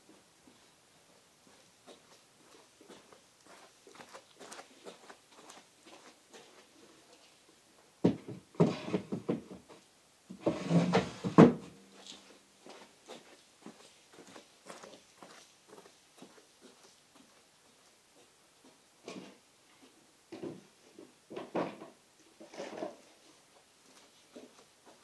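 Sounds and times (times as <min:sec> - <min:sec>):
wooden drawer sliding shut: 0:08.6 - 0:09.4, 0:10.4 - 0:11.7.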